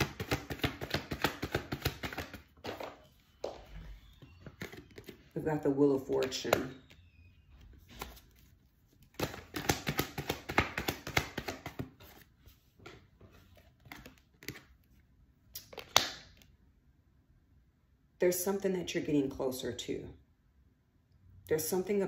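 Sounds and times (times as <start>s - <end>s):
cards being shuffled: 0.0s - 5.3s, 7.6s - 15.0s, 15.6s - 16.5s
card taps and flicks: 9.2s - 11.8s.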